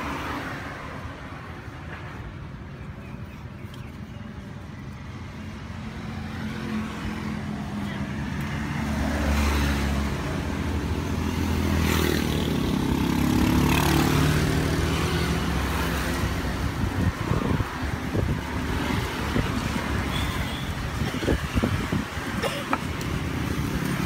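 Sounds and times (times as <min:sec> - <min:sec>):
street traffic: 0:00.0 - 0:24.0
passing vehicle engine: 0:06.0 - 0:20.1.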